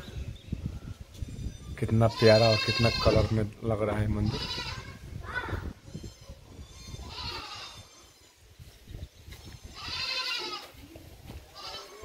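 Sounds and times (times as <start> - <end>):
goat bleating: 2.1 - 3.4, 4.2 - 5.0, 7.0 - 8.0, 9.7 - 10.8, 11.5 - 12.0.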